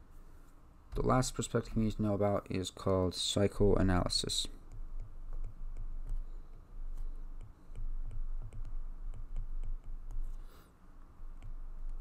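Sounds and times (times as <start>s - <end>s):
stylus clicking on tablet screen: 4.6s - 10.4s.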